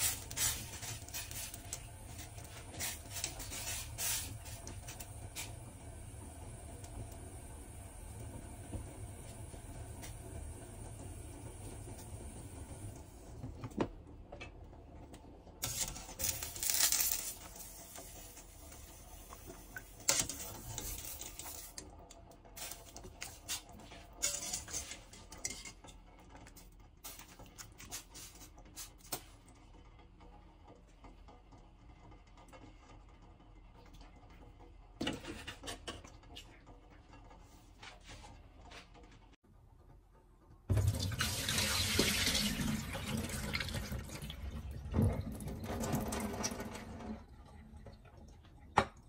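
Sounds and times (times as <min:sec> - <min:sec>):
metal clinks and scrapes: 0:24.2 - 0:25.8.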